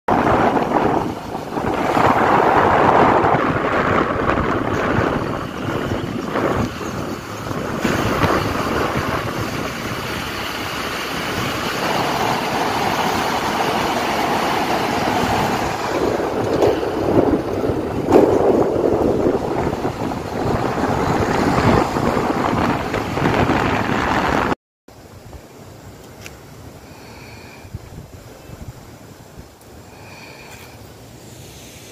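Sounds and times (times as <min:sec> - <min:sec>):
vehicle road noise: 0:00.0 - 0:31.9
wind rushing over microphone: 0:00.1 - 0:24.6, 0:27.0 - 0:31.2.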